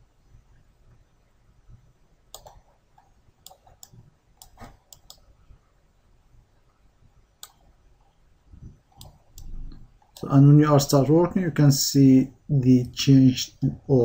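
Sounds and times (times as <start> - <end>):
computer mouse clicks: 2.3 - 5.3, 7.4 - 7.7, 8.9 - 10.3.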